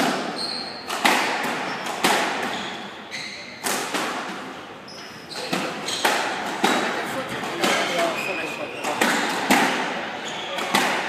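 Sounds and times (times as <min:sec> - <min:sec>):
shoes squeaking on wooden floor: 0:00.3 - 0:00.9, 0:02.5 - 0:03.6, 0:04.8 - 0:09.4, 0:10.1 - 0:10.6
squash ball knocks: 0:00.9 - 0:02.6, 0:05.4 - 0:08.1, 0:08.8 - 0:10.0, 0:10.6 - 0:11.0.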